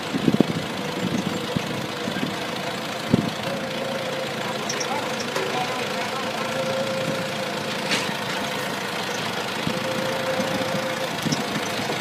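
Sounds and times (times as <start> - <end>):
forklift engine running: 0.0 - 12.0
steady hydraulic whine: 3.1 - 12.0.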